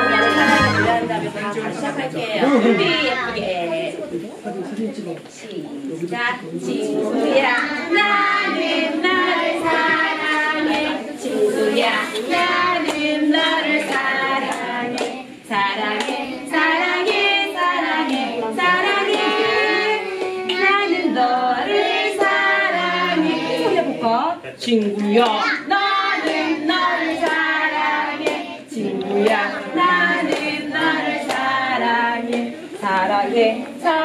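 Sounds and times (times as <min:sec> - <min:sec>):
children singing: 0:00.0 - 0:01.3, 0:06.7 - 0:24.0, 0:25.3 - 0:34.0
hand claps: 0:12.2 - 0:15.2, 0:15.9 - 0:16.2, 0:26.2 - 0:27.5, 0:29.1 - 0:31.5.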